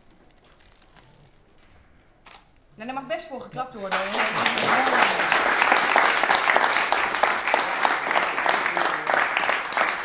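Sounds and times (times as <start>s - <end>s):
audience applauding: 3.9s - 10.0s.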